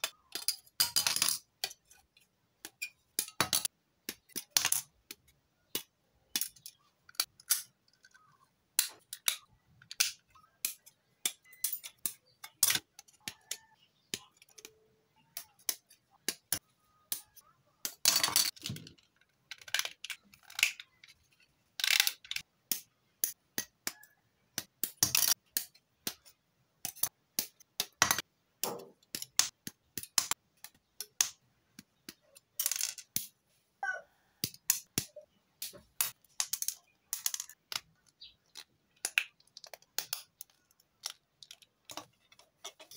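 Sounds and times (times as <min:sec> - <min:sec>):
plastic parts rattling: 0:15.4 - 0:22.4, 0:35.6 - 0:42.9.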